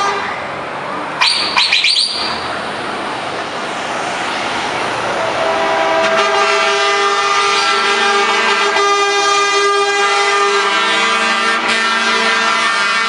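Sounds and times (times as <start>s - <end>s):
truck air horn chord: 5.2s - 13.0s.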